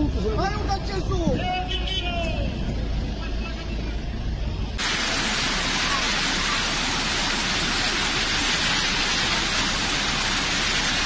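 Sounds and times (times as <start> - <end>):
floodwater rushing down street: 0.0 - 11.0
heavy rain: 4.6 - 11.0.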